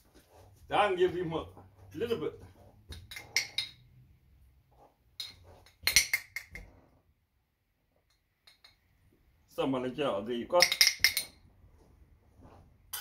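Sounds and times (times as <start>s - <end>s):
bottles clinking and knocking: 2.9s - 4.0s, 5.2s - 6.6s, 10.6s - 11.5s.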